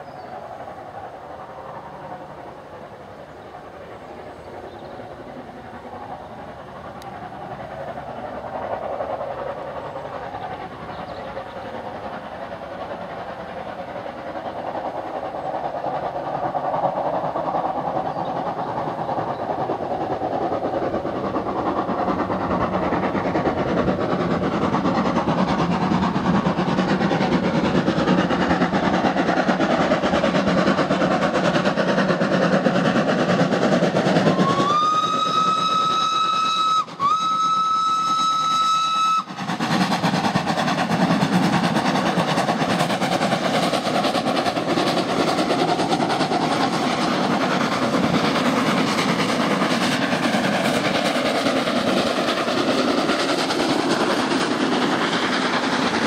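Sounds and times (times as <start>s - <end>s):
steam locomotive exhaust: 0.0s - 56.0s
steam whistle blasts: 34.3s - 39.3s.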